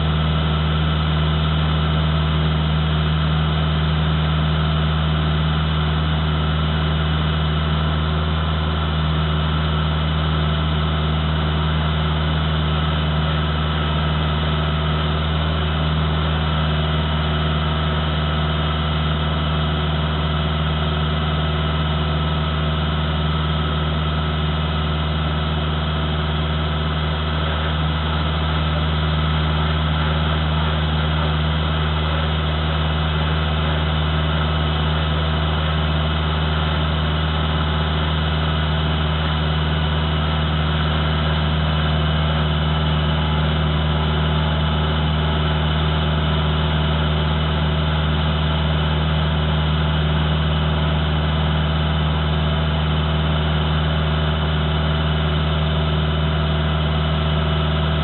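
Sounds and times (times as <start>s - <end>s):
tractor diesel engine idling: 0.0s - 58.0s.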